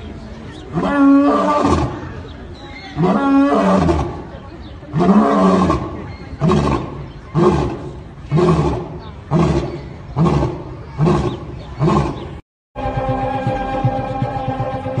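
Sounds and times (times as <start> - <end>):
lion grunting roars: 4.9 - 12.4
music with held tones: 12.8 - 15.0.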